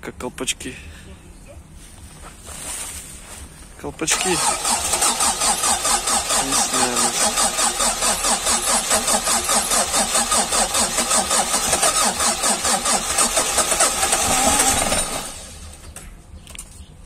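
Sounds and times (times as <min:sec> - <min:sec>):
starter motor cranking engine: 0:04.1 - 0:15.9.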